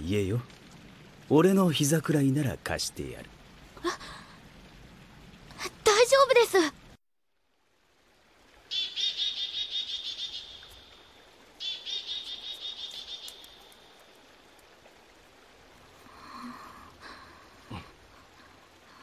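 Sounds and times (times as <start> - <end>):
bird calling in high trills: 8.7 - 11.0, 11.6 - 13.8.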